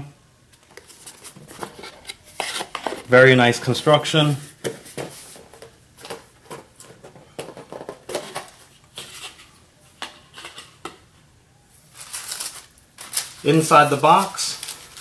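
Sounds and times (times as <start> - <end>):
tissue paper rustling: 11.8 - 15.0.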